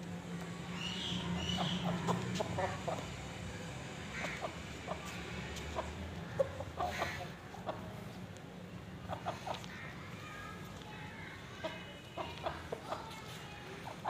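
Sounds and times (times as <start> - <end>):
chickens clucking: 1.0 - 3.4, 4.1 - 8.2, 9.0 - 9.8, 11.5 - 14.0.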